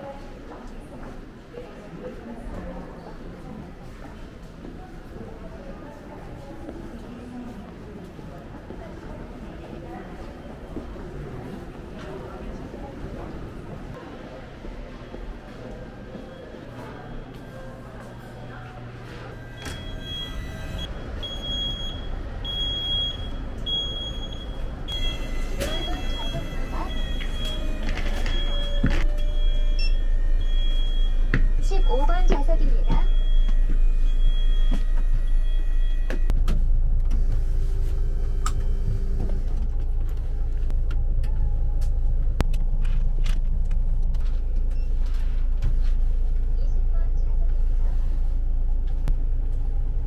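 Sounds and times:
coach engine rumbling: 7.2 - 50.0
high electronic beep: 19.6 - 36.3.

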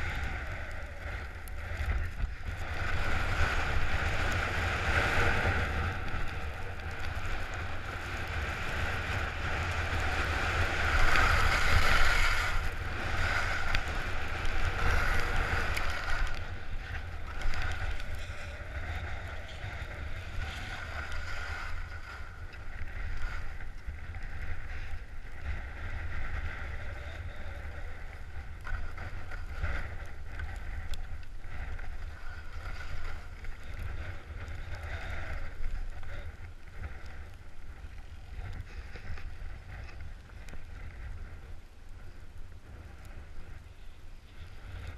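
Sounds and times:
wind rumbling on microphone: 0.0 - 44.9
skis hissing over snow: 2.6 - 22.3.

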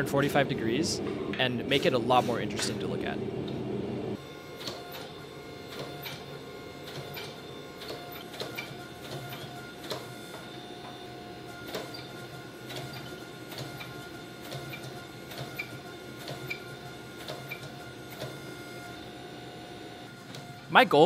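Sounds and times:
hydraulic pump hum: 0.0 - 11.8.

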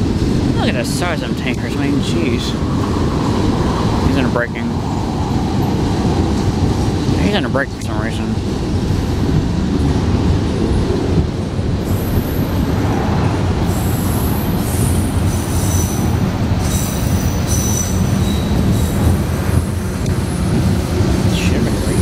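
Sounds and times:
train wheels rumbling on rails: 0.0 - 22.0
high-pitched brake squeals: 14.8 - 16.0, 16.7 - 19.0.

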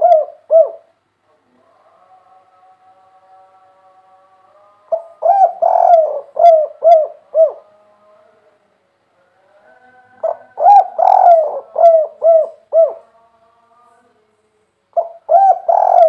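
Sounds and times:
dove cooing: 0.0 - 0.9, 4.9 - 7.7, 10.2 - 13.1, 15.0 - 16.0.

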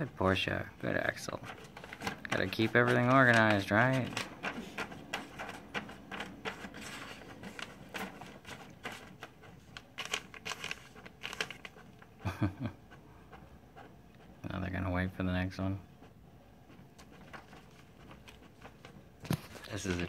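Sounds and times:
paper rustling and crinkling: 0.9 - 12.1, 17.0 - 20.0.

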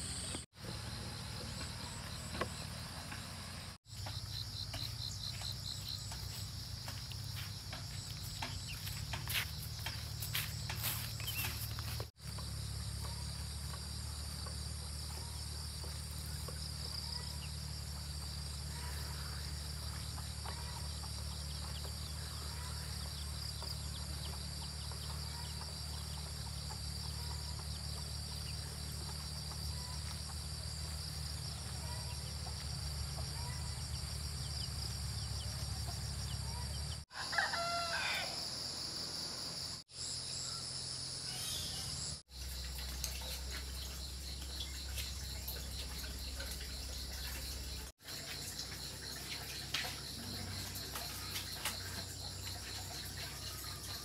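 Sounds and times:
insects chirring: 0.0 - 54.0
rooster crowing: 37.1 - 38.6.

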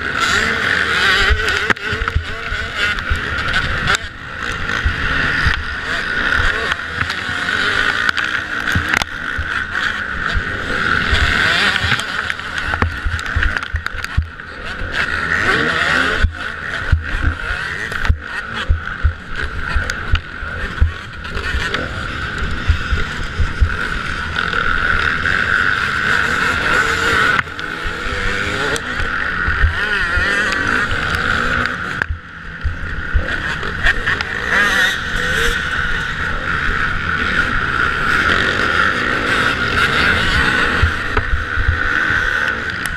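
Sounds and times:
motocross bike engine running hard: 0.0 - 42.9
wind rumble on microphone: 8.7 - 15.2, 16.1 - 34.4, 39.7 - 42.9.

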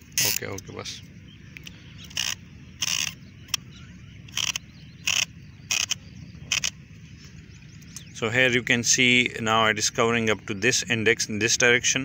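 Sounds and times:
sprinkler turret ratcheting clicks: 0.0 - 0.7, 1.6 - 3.6, 4.3 - 6.8.

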